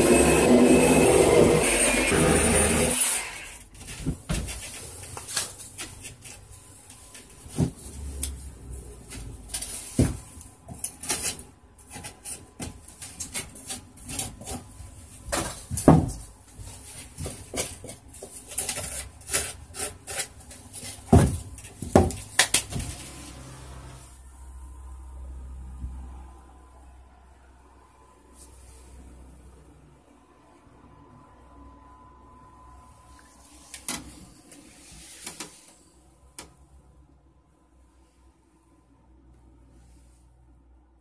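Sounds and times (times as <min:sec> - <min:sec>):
knife scraping foam: 0:10.8 - 0:14.8, 0:17.0 - 0:21.3.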